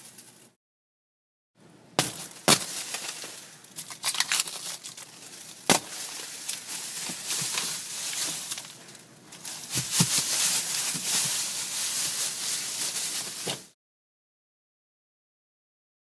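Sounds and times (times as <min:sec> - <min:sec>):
shattered glass crackling and crunching: 0:02.0 - 0:12.2.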